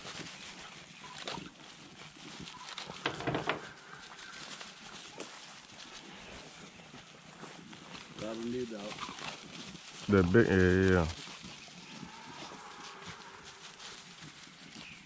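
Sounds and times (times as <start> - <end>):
beagles baying: 10.4 - 14.5.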